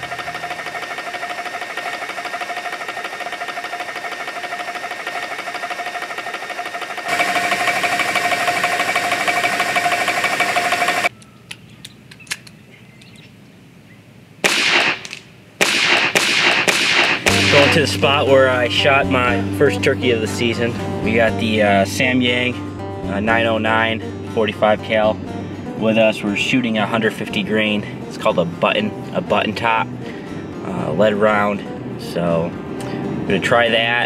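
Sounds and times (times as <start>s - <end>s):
air compressor pumping: 0.0s - 11.1s, 15.8s - 17.8s
air rifle shot: 14.4s - 17.8s.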